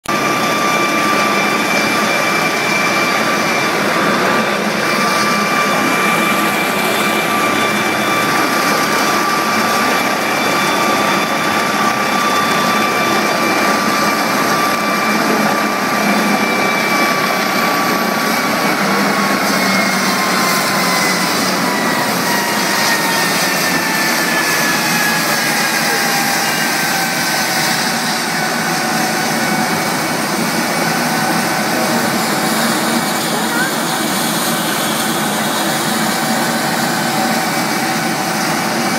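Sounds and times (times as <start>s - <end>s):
engine and rotor rush: 0.0s - 38.9s
helicopter turbine whine: 0.0s - 38.9s.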